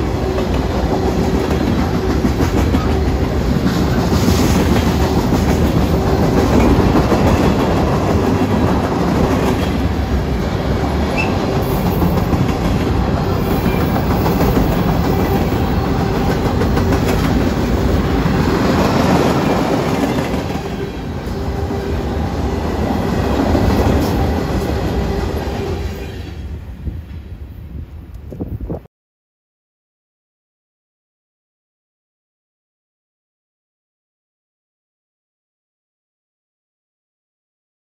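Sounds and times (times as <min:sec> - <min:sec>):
freight train wheels on rails: 0:00.0 - 0:28.7.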